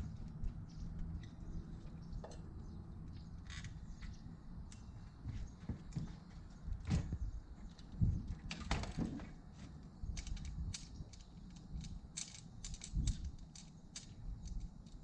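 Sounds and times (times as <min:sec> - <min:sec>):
folding bicycle metal clicks and clacks: 0:10.1 - 0:15.0.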